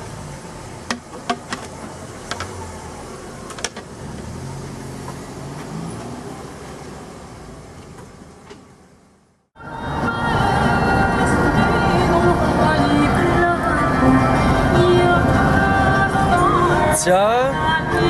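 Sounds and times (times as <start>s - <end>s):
car engine humming: 0.0s - 18.0s
sharp clicks and knocks: 0.8s - 2.6s, 3.5s - 4.3s.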